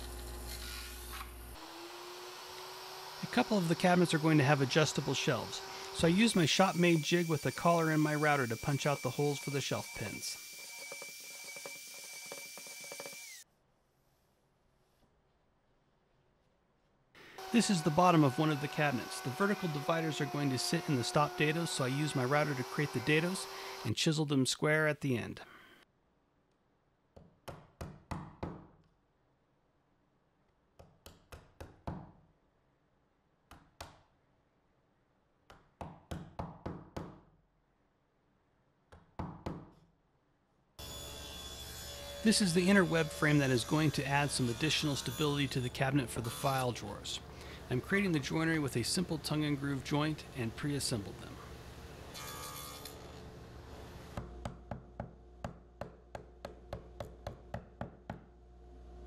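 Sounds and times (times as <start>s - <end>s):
mallet striking chisel: 54.2s - 58.3s.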